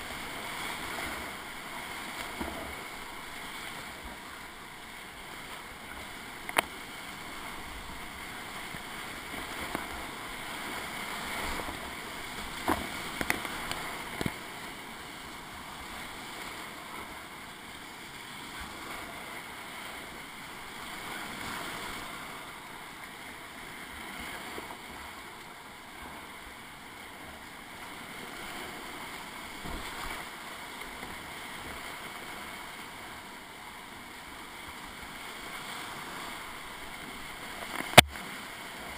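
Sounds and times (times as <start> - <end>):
whitewater rushing: 0.0 - 18.0, 18.6 - 38.9
sharp knocks on kayak: 37.8 - 38.2.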